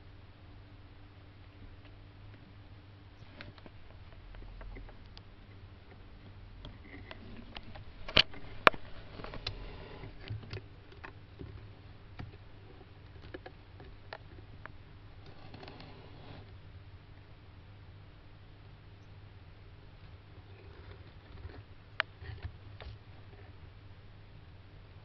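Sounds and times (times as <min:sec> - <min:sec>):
faint low hum: 0:00.0 - 0:25.0
claws scraping on wood: 0:06.7 - 0:11.7, 0:15.2 - 0:16.6.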